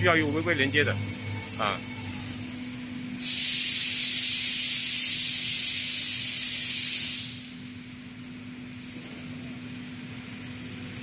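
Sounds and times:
low machine hum: 0.0 - 11.0
compressed air hissing: 2.1 - 2.6, 3.2 - 7.8, 8.8 - 9.4.

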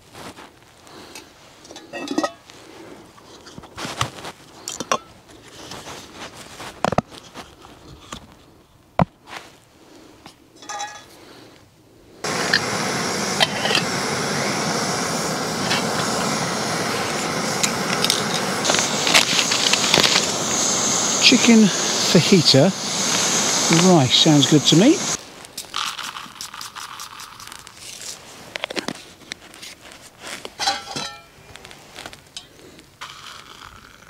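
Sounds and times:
metal cookware clinking on rock: 1.6 - 2.4, 10.6 - 11.1, 30.6 - 31.4
gas stove burner hissing: 12.1 - 27.8.

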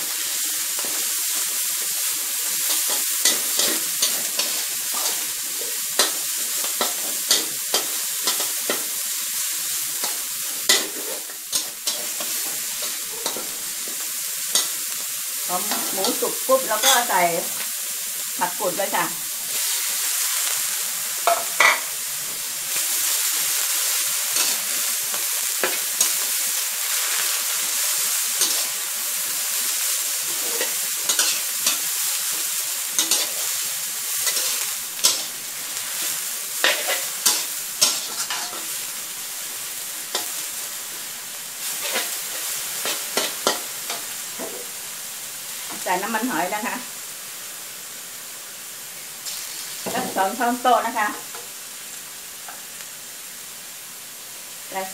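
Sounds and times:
food sizzling in a wok: 0.0 - 54.9
metal spatula scraping a wok: 2.4 - 9.0, 10.0 - 14.8, 15.6 - 17.2, 21.2 - 21.9, 23.8 - 28.9, 30.2 - 39.0, 39.7 - 44.7, 49.2 - 50.1.

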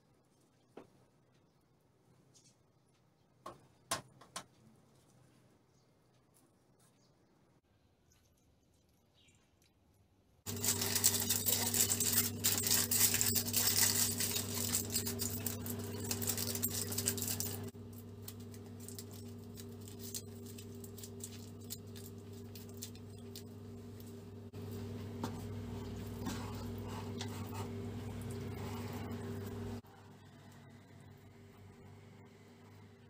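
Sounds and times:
aluminium foil crinkling: 10.5 - 24.2.

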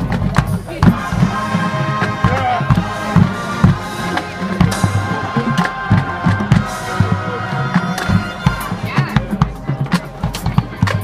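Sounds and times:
wind instruments holding chords: 0.0 - 11.0.

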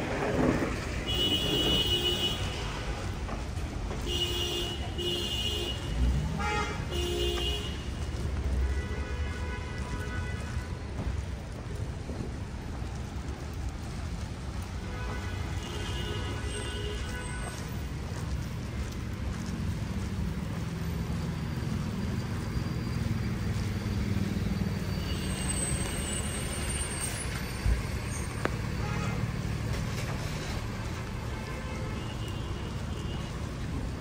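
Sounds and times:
tyres hissing on wet pavement: 0.0 - 34.0
vehicle engine rumble: 0.0 - 34.0
faint high squeal: 21.3 - 28.8.

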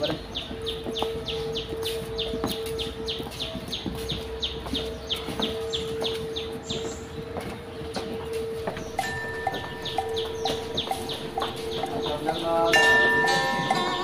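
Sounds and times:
bird chirping rapidly: 8.7 - 14.0.

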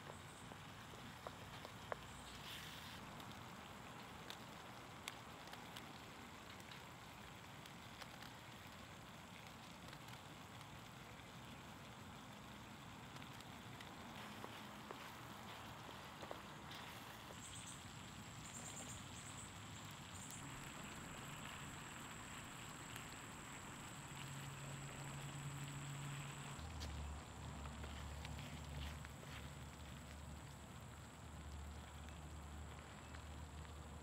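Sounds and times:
small ticks and pops: 0.0 - 34.0
stew simmering with bubbling hiss: 0.0 - 34.0.

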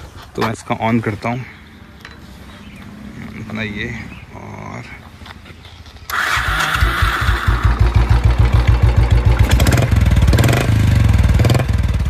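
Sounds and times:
motorcycle engine idling and revving: 6.0 - 12.0.

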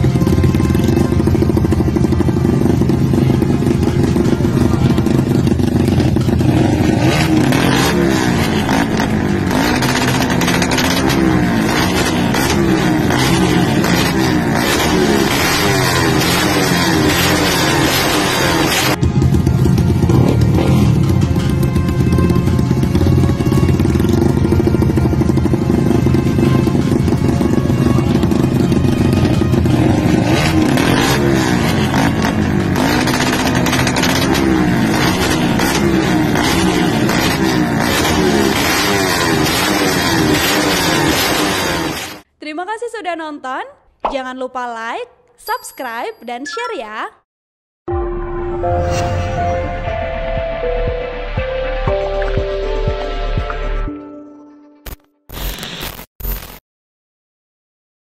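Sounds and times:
motorcycle engines revving: 0.0 - 42.3.

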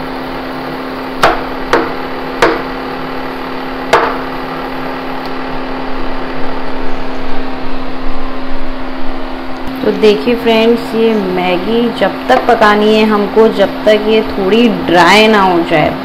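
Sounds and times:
induction cooktop hum: 0.0 - 16.0
utensil knocking on a pan: 1.2 - 2.7, 3.9 - 4.3.

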